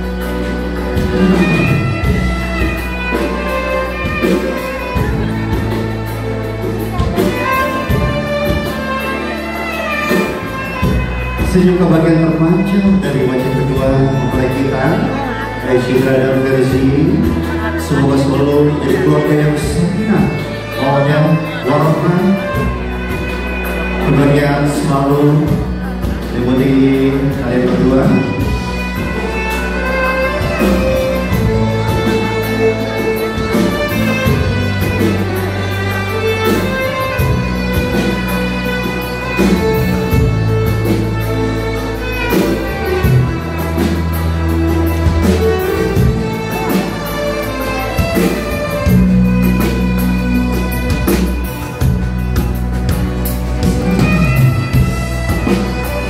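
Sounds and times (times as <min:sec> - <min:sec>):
instrumental music over loudspeakers: 0:00.0 - 0:56.0
drum beat: 0:27.9 - 0:56.0.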